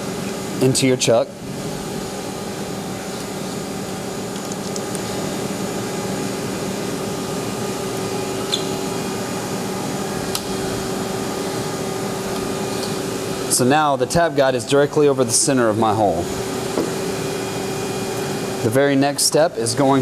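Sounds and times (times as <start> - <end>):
shop machinery humming: 0.0 - 20.0.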